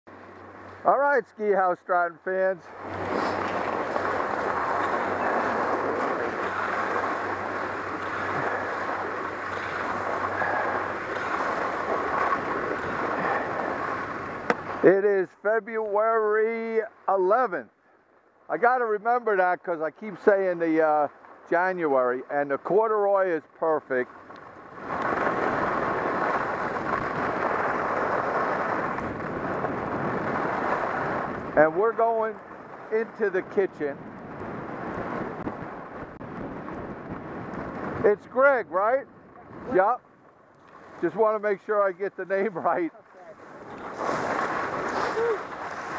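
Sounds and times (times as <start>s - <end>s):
wind rushing past microphone: 2.6s - 14.9s, 24.5s - 40.1s, 40.8s - 45.9s
skis hissing over snow: 43.9s - 45.9s.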